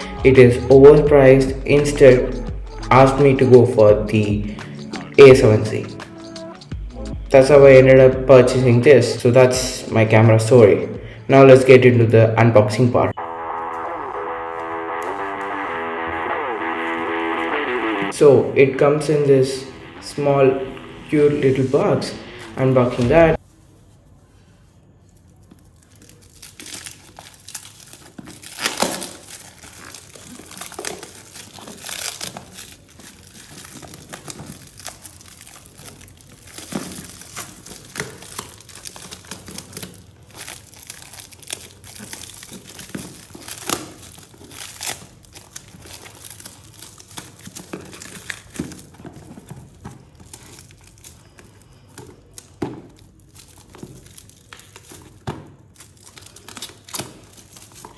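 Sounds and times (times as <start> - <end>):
plastic shrink-wrap tearing: 25.0 - 57.9.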